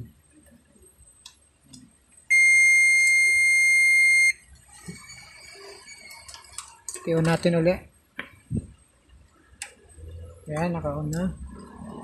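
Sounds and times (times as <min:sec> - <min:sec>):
long electronic beep: 0:02.3 - 0:04.4.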